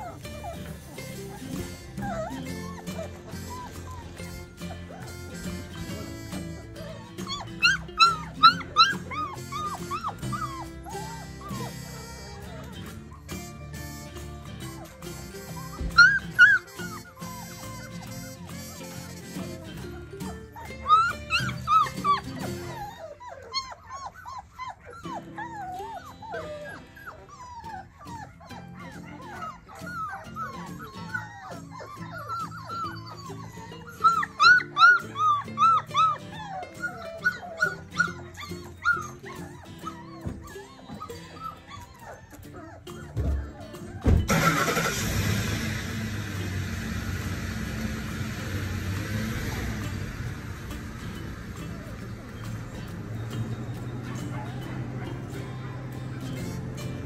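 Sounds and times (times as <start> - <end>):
puppies yelping: 0.0 - 57.0
background music: 31.1 - 57.0.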